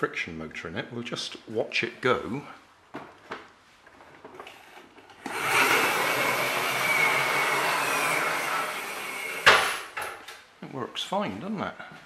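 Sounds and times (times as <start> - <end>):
toy truck flywheel motor whirring: 5.2 - 9.8.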